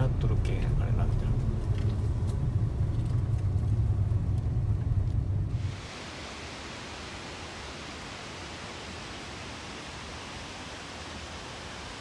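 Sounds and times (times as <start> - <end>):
distant waterfall roar: 5.0 - 12.0.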